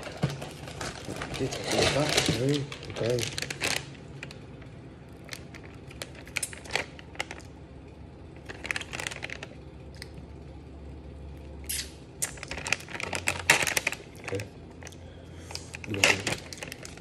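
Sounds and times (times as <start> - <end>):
plastic pouch crinkling: 0.0 - 4.6
mouth smacks: 11.6 - 12.4.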